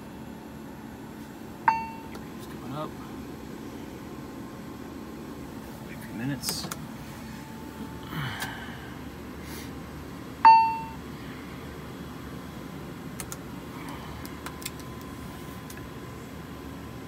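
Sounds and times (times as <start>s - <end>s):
auxiliary power unit hum: 0.0s - 17.0s
faint steady tone: 1.6s - 2.2s, 10.4s - 11.7s
cockpit chime: 1.7s - 2.1s.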